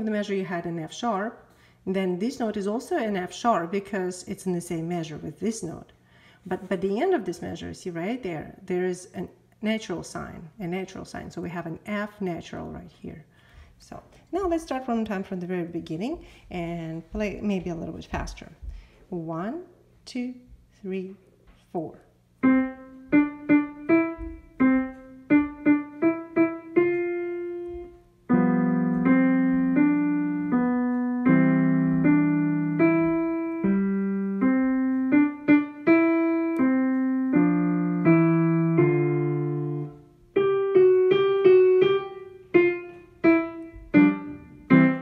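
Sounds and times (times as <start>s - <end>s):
digital piano piece: 22.4s - 45.0s.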